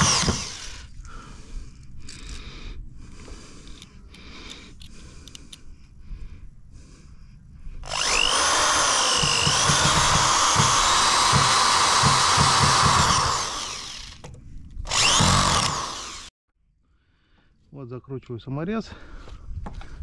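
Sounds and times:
electric drill motor whine: 0.0 - 1.0, 7.8 - 14.2, 14.8 - 16.3.

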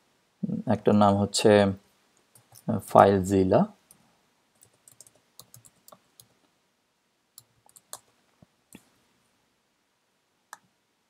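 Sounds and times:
faint keyboard typing: 2.2 - 2.8, 3.9 - 6.5, 7.4 - 9.0.

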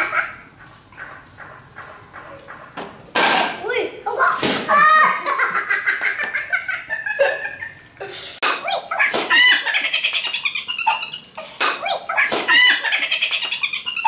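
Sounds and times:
boys laughing: 4.7 - 14.0.

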